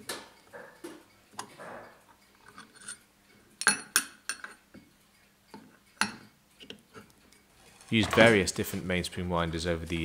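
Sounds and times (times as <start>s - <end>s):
light metallic scraping: 6.9s - 10.0s.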